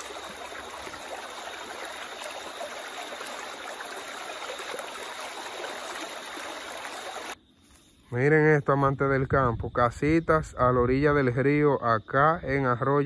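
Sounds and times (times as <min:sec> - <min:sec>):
river water rushing: 0:00.0 - 0:07.4.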